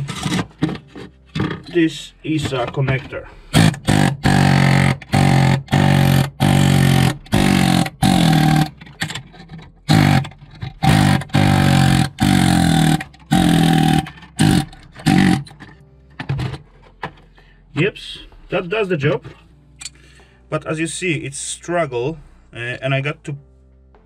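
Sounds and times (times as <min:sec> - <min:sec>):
pneumatic air hammer bursts: 0:03.5 - 0:09.2, 0:09.9 - 0:15.7.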